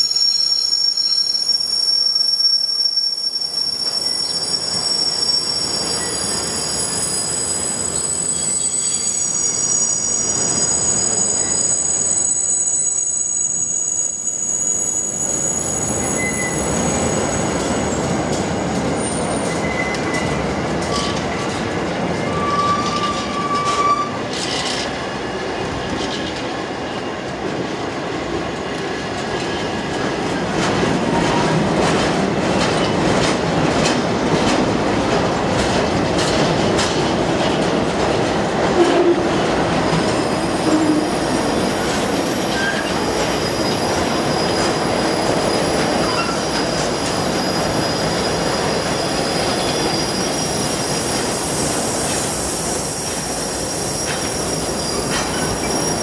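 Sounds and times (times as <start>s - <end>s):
train wheel squeal: 0.0s - 21.5s, 22.2s - 27.2s, 38.8s - 56.0s
train wheels rumbling and clattering: 15.2s - 56.0s.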